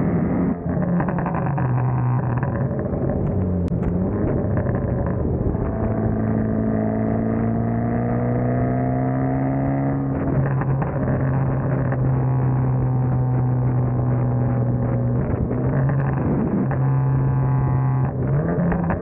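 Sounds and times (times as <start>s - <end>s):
car exhaust while driving: 0.0s - 19.0s.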